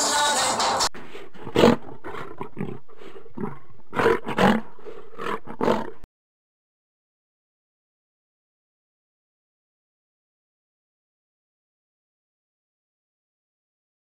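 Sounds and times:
lion roaring: 1.2s - 6.1s.

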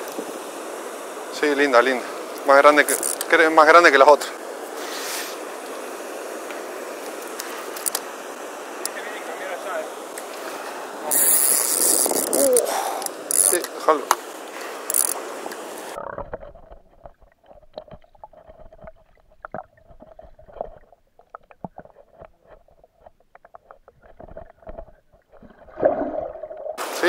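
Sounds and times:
rushing water: 0.0s - 16.0s, 25.3s - 27.0s
faint steady hum: 0.0s - 27.0s
underwater clicks and knocks: 16.0s - 26.8s.

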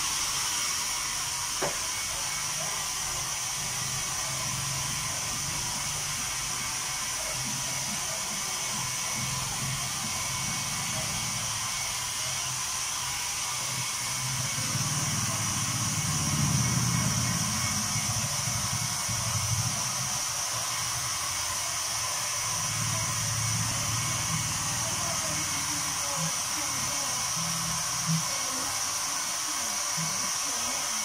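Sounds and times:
hair dryer blowing: 0.0s - 31.0s.

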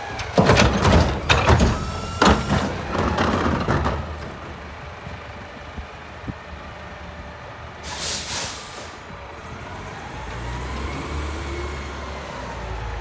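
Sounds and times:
truck engine running: 0.0s - 11.3s
air brakes hissing: 7.8s - 9.1s.

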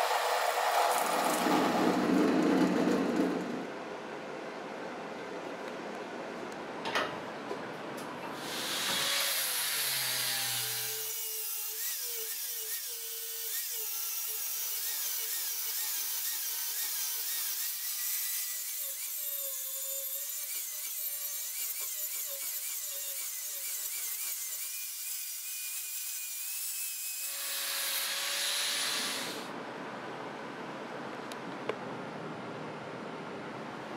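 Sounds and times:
angle grinder grinding steel: 8.4s - 29.5s.

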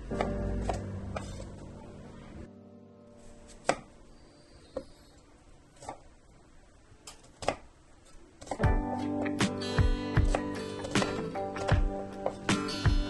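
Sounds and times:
background music: 0.0s - 4.1s, 8.6s - 13.0s.

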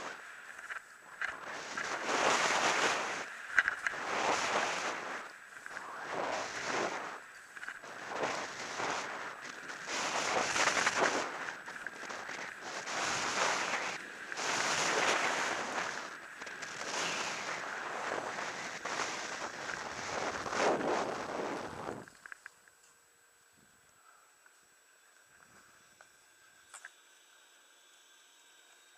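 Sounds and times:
skis scraping over snow: 0.0s - 22.1s.

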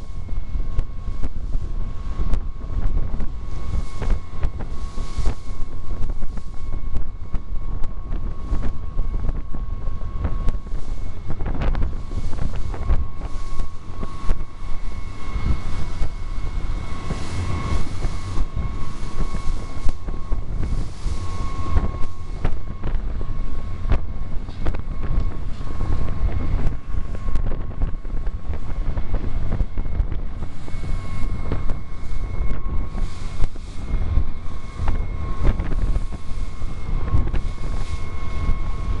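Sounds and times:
boat engine whine: 0.0s - 39.0s
wind buffeting microphone: 0.0s - 39.0s.

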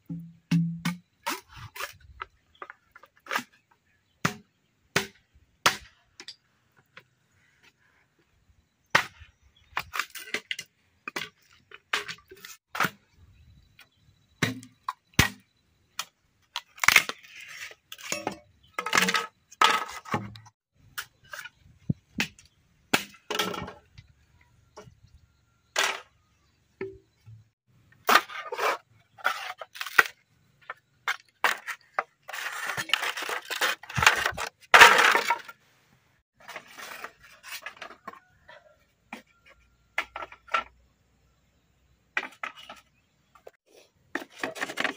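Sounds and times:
machete chopping bamboo: 0.2s - 1.4s, 4.2s - 6.0s, 22.2s - 23.2s.

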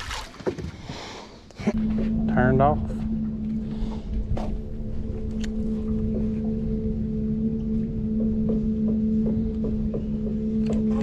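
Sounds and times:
wind rumbling on microphone: 1.8s - 11.0s.

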